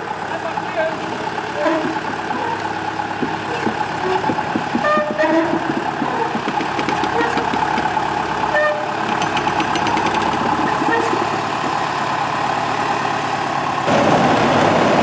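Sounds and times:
diesel locomotive engine running: 0.0s - 15.0s
sharp metallic clicks and clanks: 8.8s - 12.0s.

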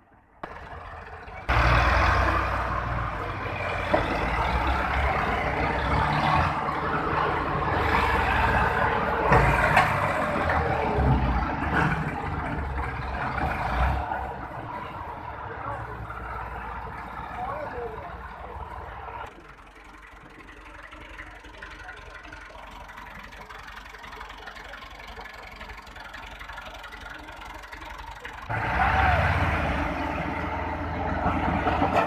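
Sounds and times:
tractor diesel engine under load: 0.0s - 32.0s.

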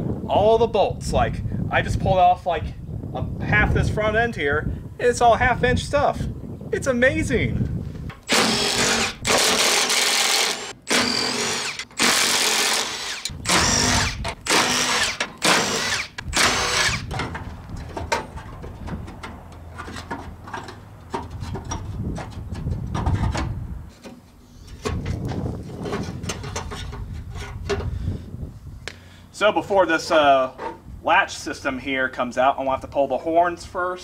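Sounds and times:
impact driver running: 8.3s - 17.3s
clicks and knocks of bolts handled: 17.1s - 23.4s.

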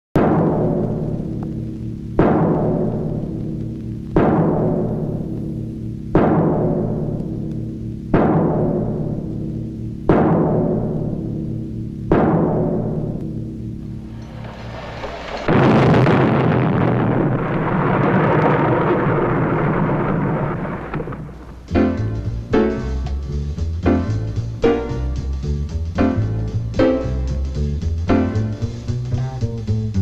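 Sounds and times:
heavy drum strokes: 2.2s - 7.4s, 8.1s - 30.0s
orchestral music: 21.6s - 30.0s.

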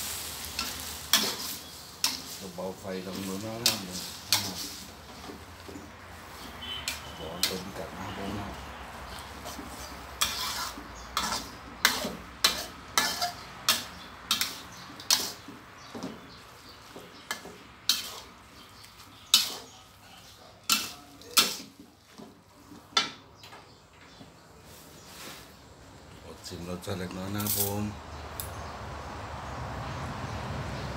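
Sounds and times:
metal spatula scraping a wok: 0.0s - 22.2s
low sizzle: 0.0s - 23.1s.

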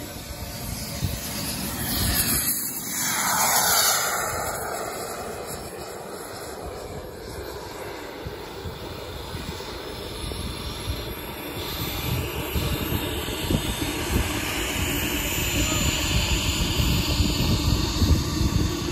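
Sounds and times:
model jet turbine engine: 0.0s - 18.9s
low rumble: 0.3s - 9.3s.

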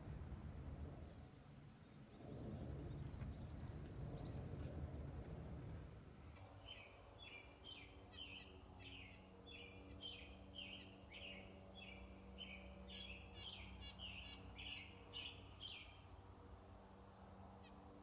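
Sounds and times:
songbird chirping: 1.0s - 4.7s, 6.3s - 16.3s.

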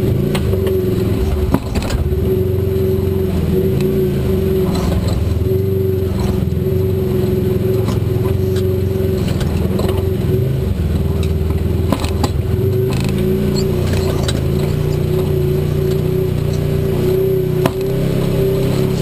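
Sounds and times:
utility vehicle engine running: 0.0s - 19.0s
sharp knocks over rocks: 0.3s - 2.1s, 10.9s - 13.2s.

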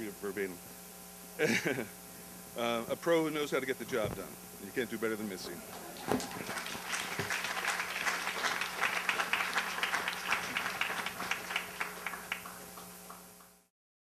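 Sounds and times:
audience applauding: 5.7s - 13.7s.

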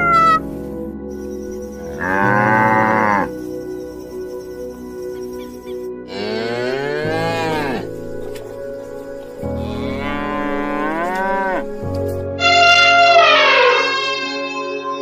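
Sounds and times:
background music: 0.0s - 15.0s
cow mooing: 2.0s - 3.3s, 6.1s - 7.9s, 9.6s - 11.7s.

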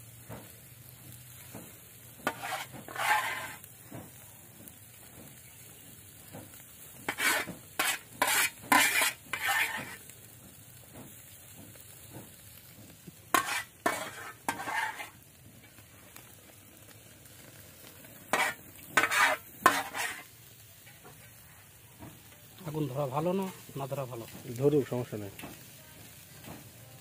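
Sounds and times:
fish sizzling on grill: 0.0s - 27.0s
metal utensils scraping grill rack: 2.2s - 3.7s, 7.0s - 10.1s, 13.3s - 15.3s, 18.2s - 21.0s.

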